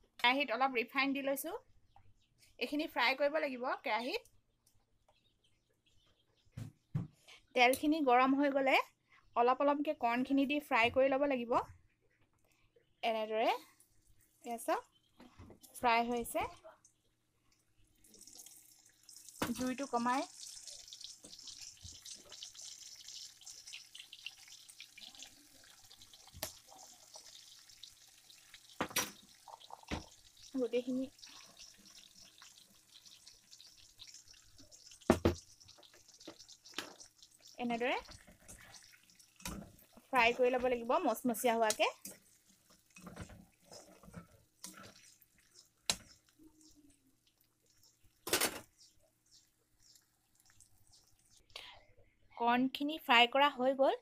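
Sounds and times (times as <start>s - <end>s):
corn sizzling in hot oil: 18.0s - 51.5s.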